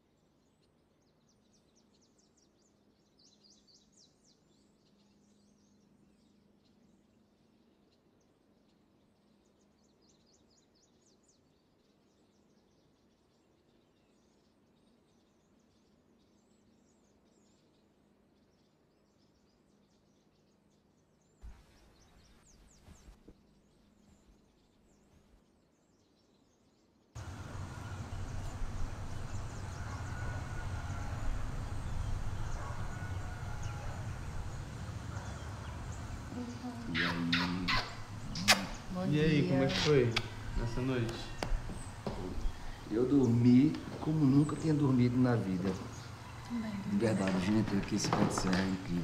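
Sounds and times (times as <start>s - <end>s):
low rumble: 27.2s - 36.9s
bird calls: 27.2s - 49.0s
soft knocks: 40.2s - 42.9s, 47.2s - 49.0s.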